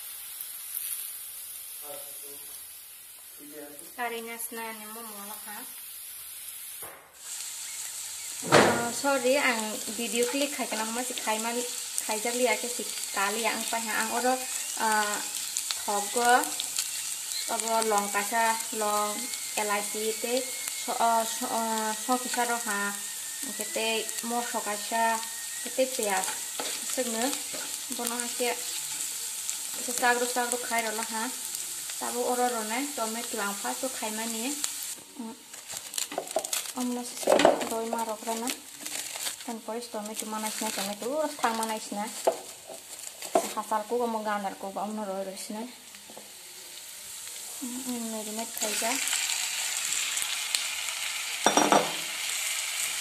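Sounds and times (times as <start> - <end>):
onions sizzling in oil: 0.0 - 53.0
spatula scraping pan: 26.1 - 29.1.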